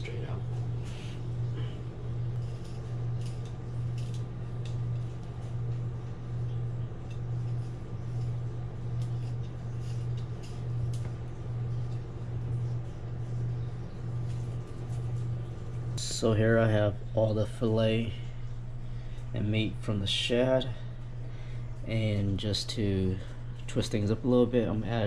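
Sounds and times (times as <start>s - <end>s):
steady low hum: 0.0s - 25.0s
knife scratching through fish scales: 2.2s - 5.4s, 7.0s - 11.0s.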